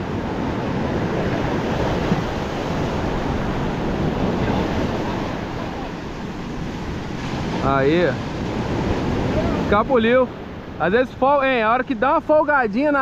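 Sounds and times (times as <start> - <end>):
ocean surf breaking on beach: 0.0 - 13.0.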